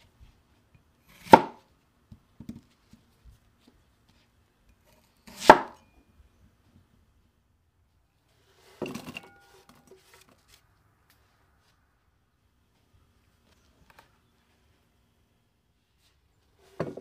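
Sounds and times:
knife chopping onion on wooden board: 1.1 - 1.6, 5.2 - 5.8.

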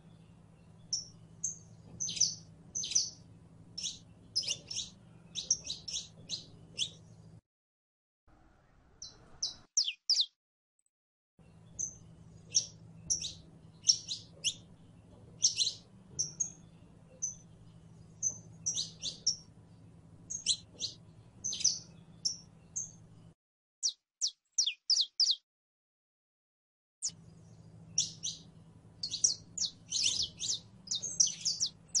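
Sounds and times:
finch singing: 0.0 - 7.3, 9.0 - 10.3, 11.4 - 23.2, 23.8 - 25.4, 27.0 - 32.0.

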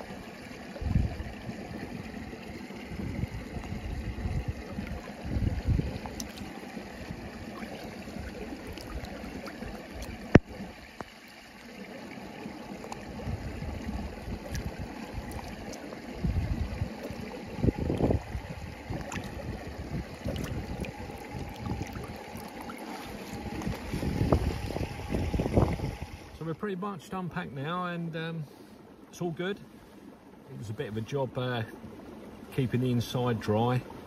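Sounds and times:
flask gurgling as it fills: 0.0 - 26.3
brook running over stones: 0.0 - 26.4
wind rumble on microphone: 0.8 - 9.4, 13.0 - 15.6, 16.2 - 26.4.

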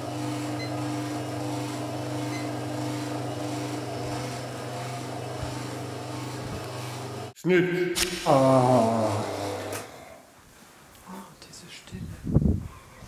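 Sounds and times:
kitchen mixer motor humming: 0.0 - 7.3, 8.8 - 10.2.

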